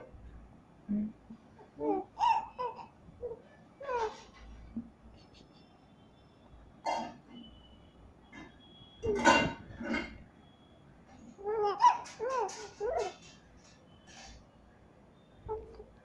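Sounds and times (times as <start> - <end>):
infant babbling and cooing: 1.6 - 4.2.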